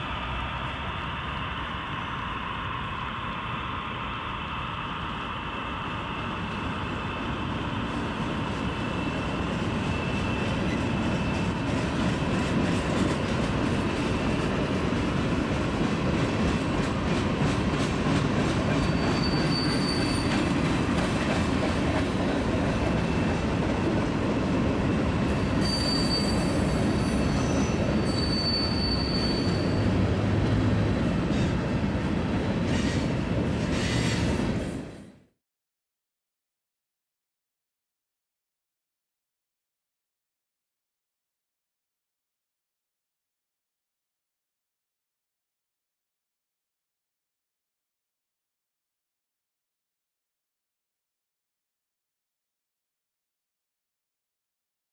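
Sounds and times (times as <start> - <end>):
high-pitched wheel squeals: 18.8 - 20.5, 25.4 - 30.0.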